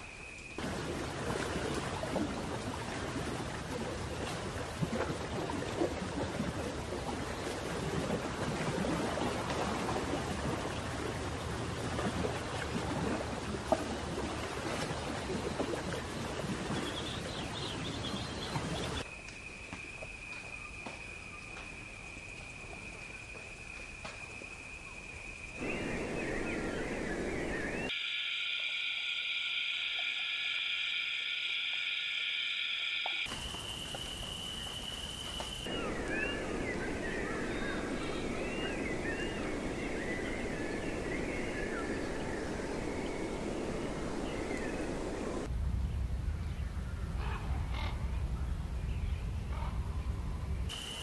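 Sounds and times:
steady rushing background: 25.6 - 35.7
loud high-pitched chorus: 27.9 - 33.3
high-pitched tone: 27.9 - 33.4.

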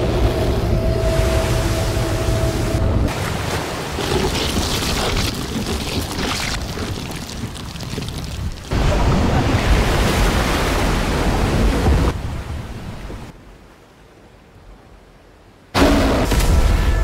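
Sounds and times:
seawater crashing and churning: 1.0 - 12.2.

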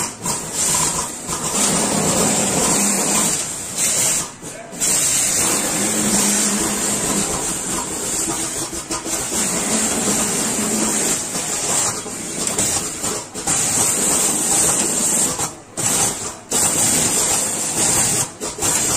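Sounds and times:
machine blower hissing: 0.0 - 18.9.

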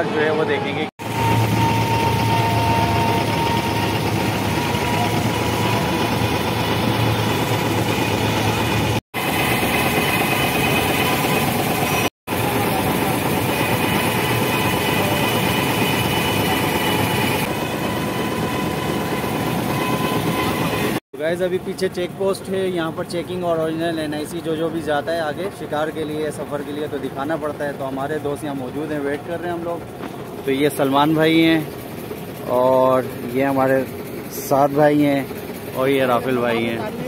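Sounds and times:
boat engine running: 1.0 - 9.0, 21.6 - 37.0.

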